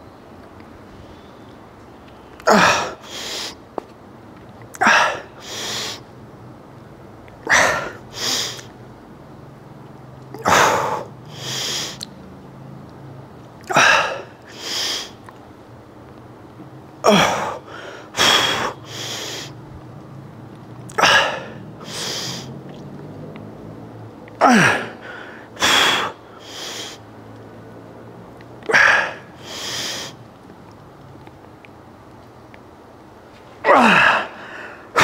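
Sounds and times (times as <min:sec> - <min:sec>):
man grunting: 0:02.5 - 0:03.0, 0:17.1 - 0:17.7, 0:24.4 - 0:26.2, 0:33.6 - 0:35.0
hissing exhales: 0:21.8 - 0:22.5, 0:28.7 - 0:30.2.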